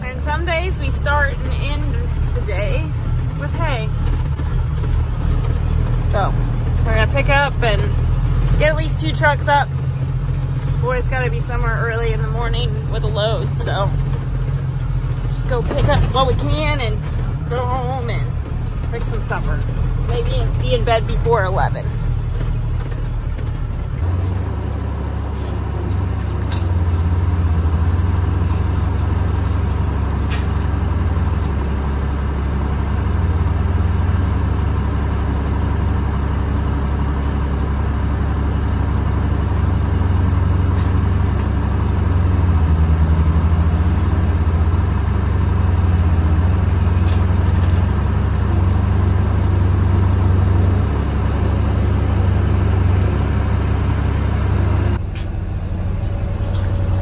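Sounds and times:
truck engine drone: 0:00.0 - 0:57.0.

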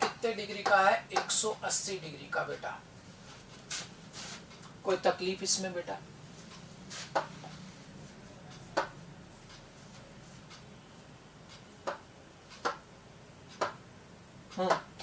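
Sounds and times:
faint room hum: 0:00.0 - 0:15.0
taps on glass display: 0:08.7 - 0:09.0, 0:11.5 - 0:12.8, 0:13.5 - 0:13.8.

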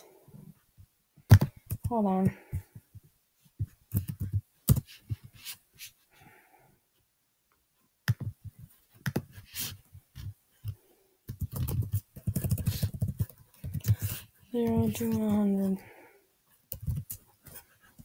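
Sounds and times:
typing on computer keyboard: 0:01.3 - 0:02.0, 0:03.9 - 0:04.9, 0:11.3 - 0:14.0, 0:16.7 - 0:17.2.

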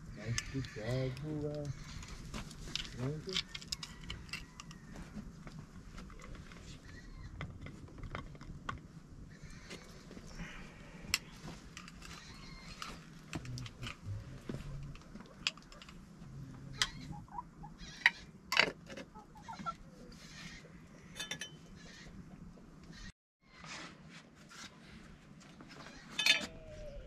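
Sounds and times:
metal spoons clicking on dishes: 0:21.2 - 0:21.6.

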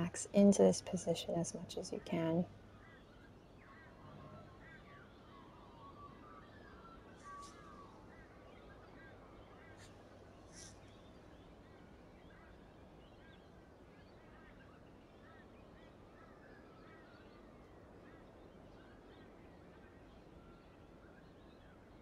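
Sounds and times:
faint bird chirps: 0:00.8 - 0:22.0
soft hiss: 0:09.6 - 0:11.3.

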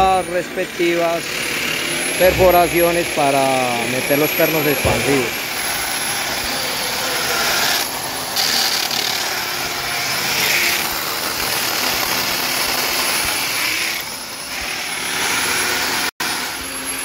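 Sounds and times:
electric drill grinding into concrete: 0:06.8 - 0:17.0.

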